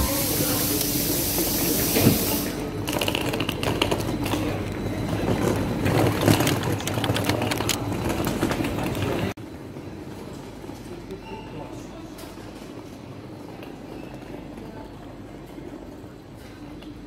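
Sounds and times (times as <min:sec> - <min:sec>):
suitcase wheels rumbling on paving: 0:02.9 - 0:09.3.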